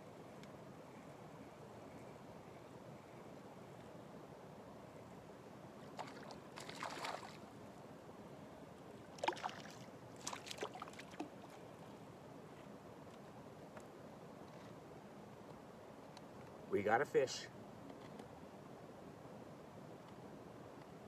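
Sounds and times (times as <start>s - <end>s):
fish splashing in water: 5.9s - 7.4s, 9.1s - 11.4s.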